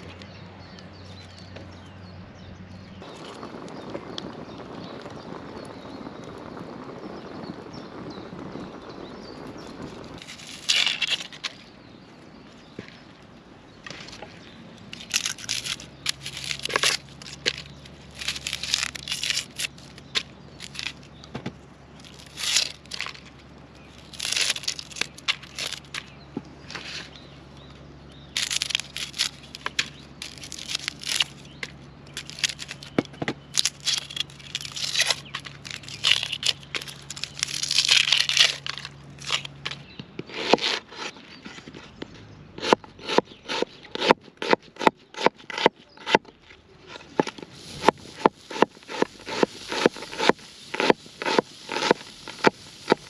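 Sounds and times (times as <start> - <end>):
dry onion skins crackling and tearing: 9.8 - 11.7, 14.1 - 41.9, 42.6 - 53.0.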